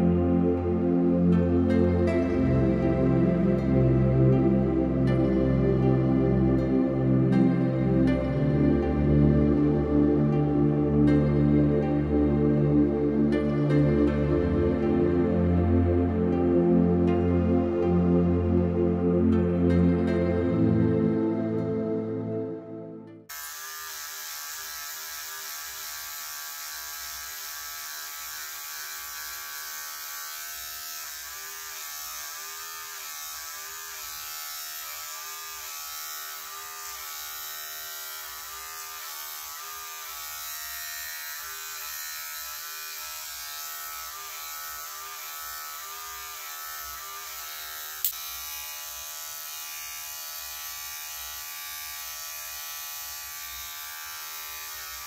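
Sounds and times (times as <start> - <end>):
electric hair clippers humming: 23.3 - 55.0.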